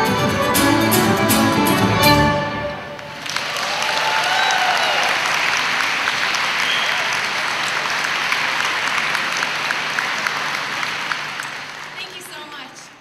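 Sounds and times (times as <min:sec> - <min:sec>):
audience applauding: 0:02.8 - 0:12.8
cheers: 0:03.2 - 0:12.0.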